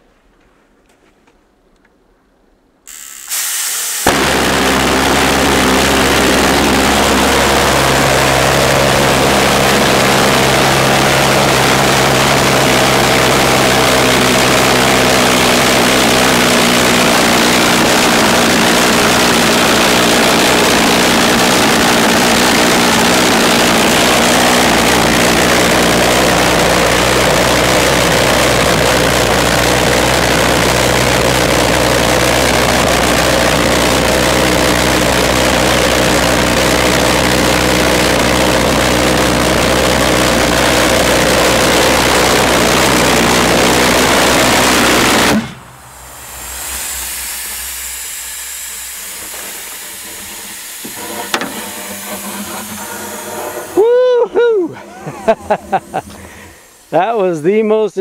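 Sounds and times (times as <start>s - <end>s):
pulsejet hiss bursts: 2.9s - 32.2s, 41.8s - 58.0s
pulsejet loud low drone: 4.1s - 57.6s.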